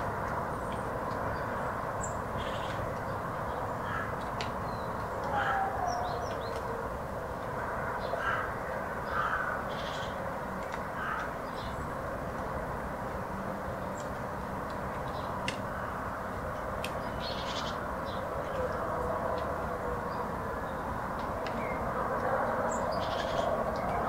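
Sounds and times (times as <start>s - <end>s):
small birds chirping: 0.3s - 6.8s, 13.7s - 24.0s
crows cawing: 3.8s - 4.4s, 5.2s - 6.3s, 8.0s - 10.2s, 10.9s - 11.4s, 15.6s - 16.2s, 17.3s - 17.9s.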